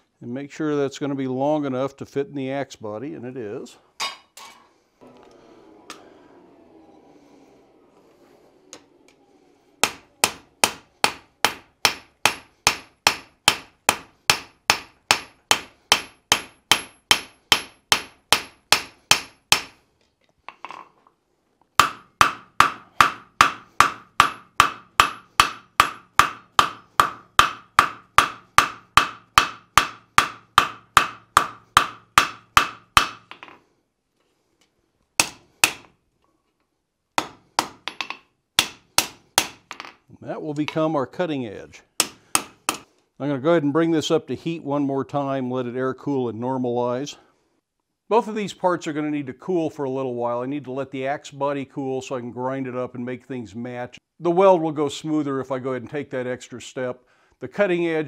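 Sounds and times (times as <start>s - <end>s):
hammer striking steel on anvil: 9.8s - 19.8s, 21.8s - 33.6s, 37.2s - 39.9s, 42.0s - 42.9s.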